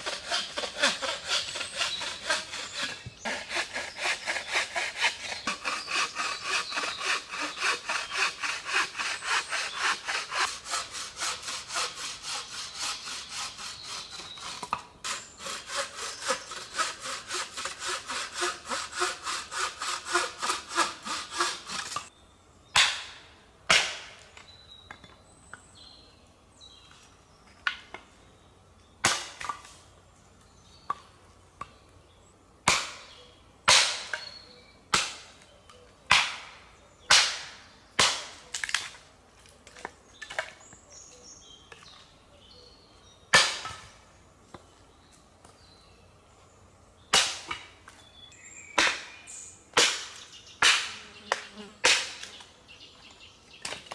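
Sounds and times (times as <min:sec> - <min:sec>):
bow saw cutting branch: 0:00.0 - 0:22.1.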